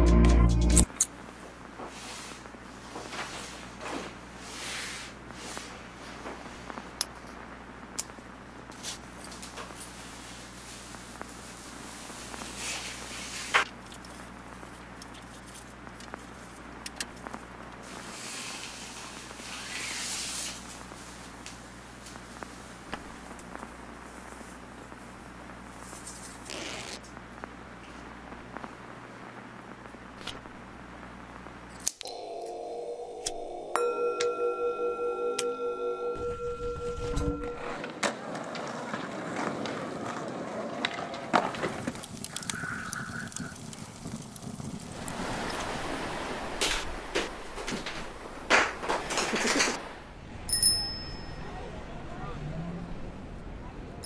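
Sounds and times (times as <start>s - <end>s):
steady hiss: 1.0s - 31.8s
singing bowl ringing: 32.0s - 37.8s, 50.5s - 51.6s.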